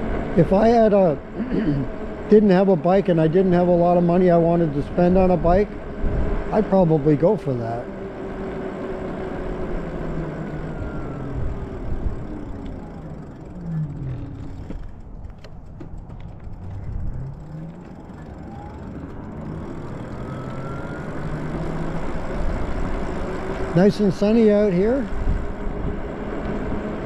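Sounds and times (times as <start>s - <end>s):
electric bike motor whine: 0.0s - 27.0s
low wind: 0.0s - 27.0s
tyre rumble: 12.2s - 18.3s.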